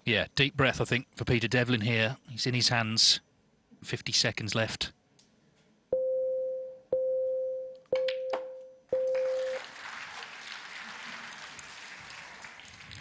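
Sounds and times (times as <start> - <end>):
electronic warning beeps: 6.0 - 9.6
crowd noise hiss: 9.6 - 13.0.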